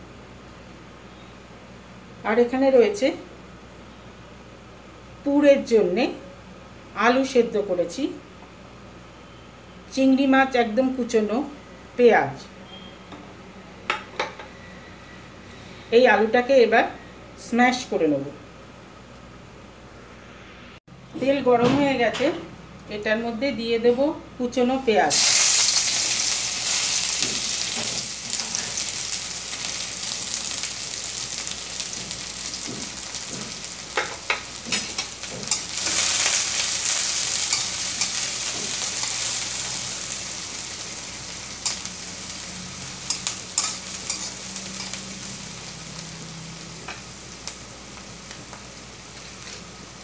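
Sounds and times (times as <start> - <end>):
onions sizzling in hot oil: 25.1 - 50.0
metal spatula scraping pan: 43.1 - 45.0.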